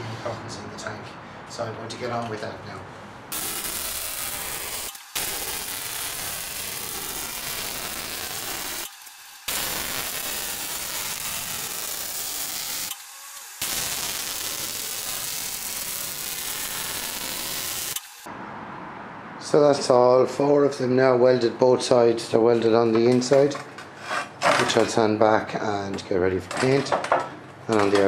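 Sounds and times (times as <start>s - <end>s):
welding arc on steel: 3.3s - 18.3s.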